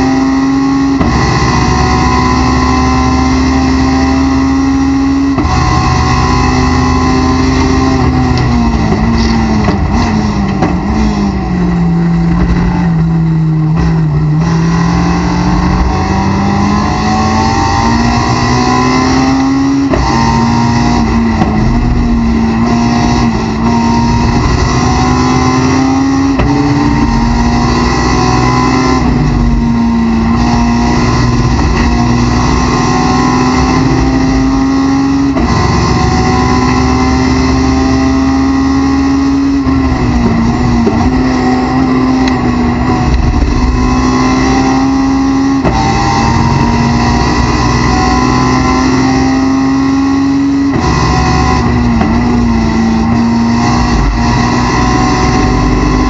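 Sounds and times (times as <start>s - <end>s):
race car engine revving: 0.0s - 56.0s.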